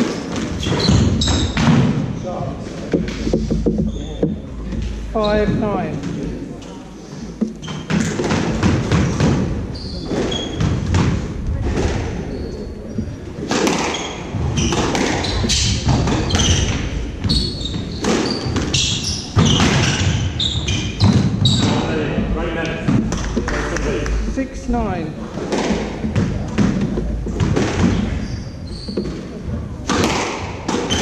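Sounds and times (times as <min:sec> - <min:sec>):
shoes squeaking on wooden floor: 0:00.0 - 0:01.9, 0:02.6 - 0:24.1, 0:24.8 - 0:31.0
squash ball hit by rackets: 0:07.4 - 0:12.1, 0:13.4 - 0:21.8, 0:25.4 - 0:28.2, 0:29.0 - 0:31.0.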